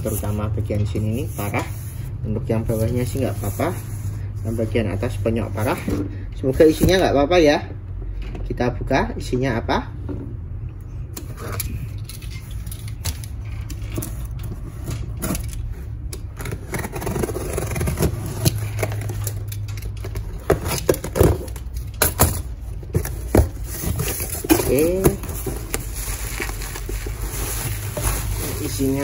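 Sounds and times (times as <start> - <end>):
cardboard box scraping and rustling: 0.0 - 7.0, 16.3 - 19.3, 22.6 - 29.0.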